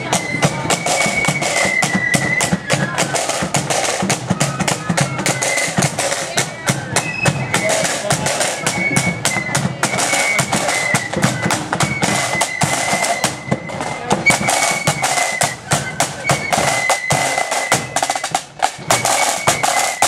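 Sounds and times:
flutes playing high melody: 0:00.0 - 0:20.0
snare drum strokes: 0:00.0 - 0:20.0.

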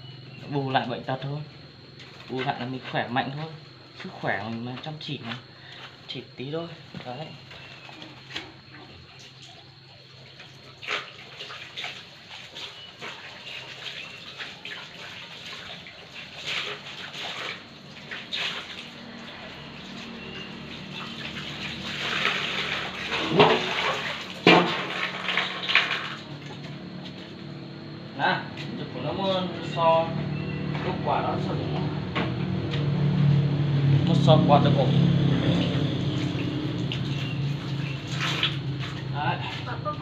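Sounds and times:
water splashing and sloshing: 0:06.8 - 0:27.5, 0:35.0 - 0:40.0.

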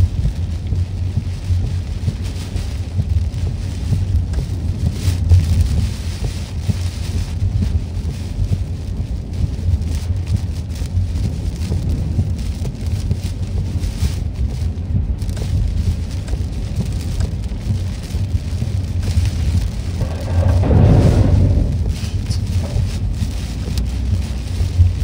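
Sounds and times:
car driving rumble: 0:00.0 - 0:25.0
heavy rain on car: 0:00.0 - 0:25.0.

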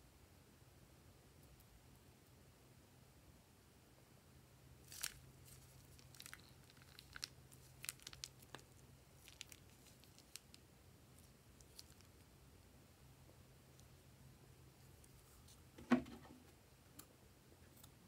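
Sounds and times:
plastic piping bag crinkling: 0:04.8 - 0:10.6, 0:11.2 - 0:12.2.

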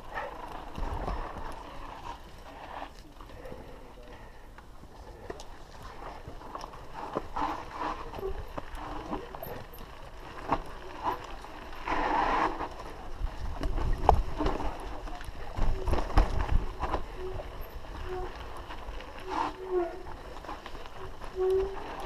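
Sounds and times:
tyres scrabbling over dirt: 0:00.0 - 0:22.0
bike rattling and knocking: 0:05.6 - 0:22.0
wind rumble on microphone: 0:10.4 - 0:22.0.

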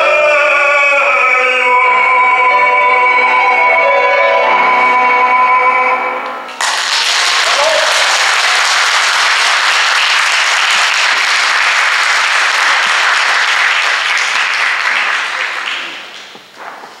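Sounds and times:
audience applauding: 0:06.6 - 0:16.5.

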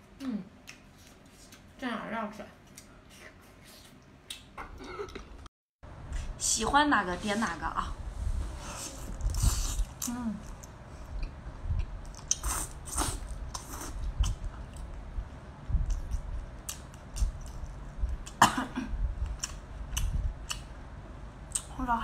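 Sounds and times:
person coughing: 0:18.4 - 0:19.0.

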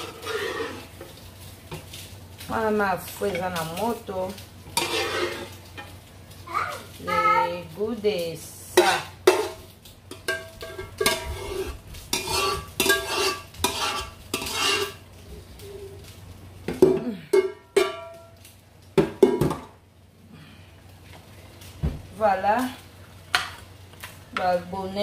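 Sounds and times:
utensils scraping metal saucepan: 0:00.0 - 0:01.0, 0:04.7 - 0:05.7, 0:08.8 - 0:15.0.

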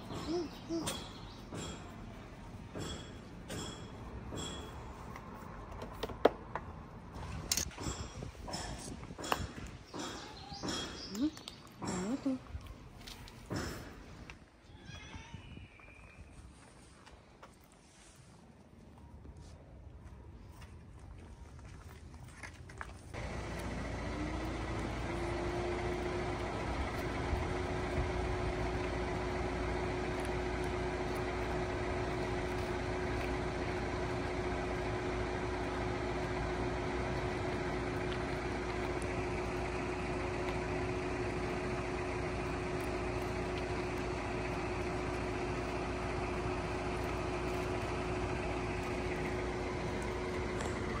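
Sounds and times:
machine running with hum: 0:23.2 - 0:51.0.

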